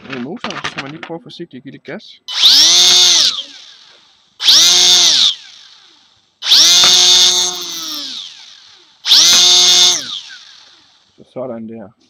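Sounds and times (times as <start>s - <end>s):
electric motor whine: 2.3s - 11.0s.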